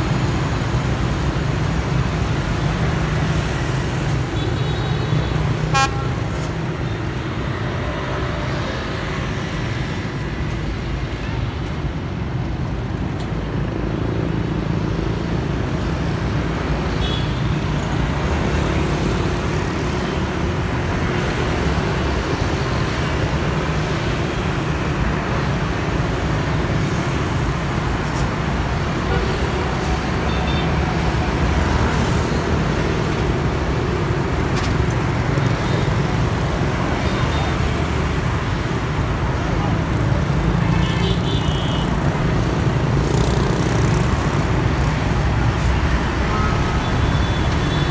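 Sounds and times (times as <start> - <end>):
motorbikes and scooters passing: 18.0 - 47.9.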